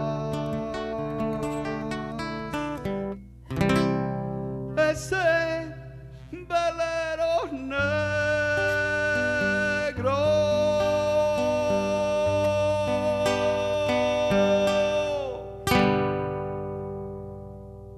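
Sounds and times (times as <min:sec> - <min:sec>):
fingerpicked classical guitar: 0:00.0 - 0:17.9
man singing held note: 0:04.8 - 0:15.6.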